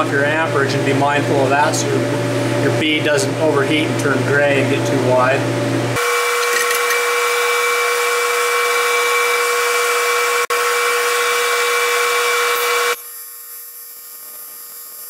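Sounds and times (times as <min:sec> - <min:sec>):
welding arc buzzing hiss: 0:11.6 - 0:15.0.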